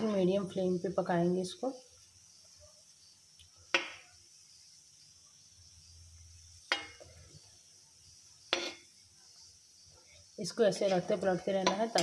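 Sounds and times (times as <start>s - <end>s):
frying oil sizzling: 0.0s - 12.0s
spoon clinking on metal pan: 8.5s - 8.9s, 11.6s - 12.0s.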